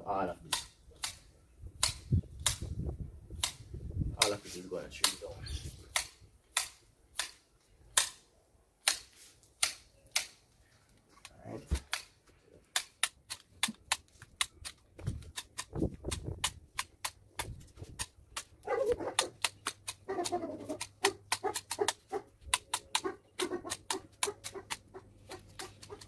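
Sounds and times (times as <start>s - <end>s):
hedge shears snipping: 0.4s - 2.7s, 4.2s - 8.2s, 8.8s - 10.4s, 11.2s - 26.0s.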